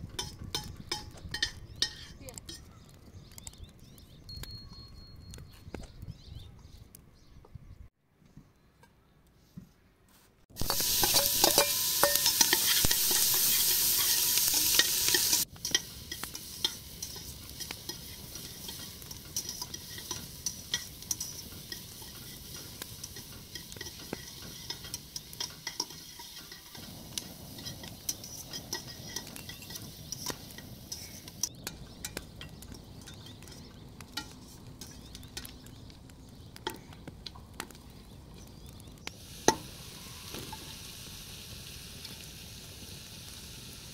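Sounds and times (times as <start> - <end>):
food sizzling in a pot: 10.5 - 32.2, 39.0 - 43.9.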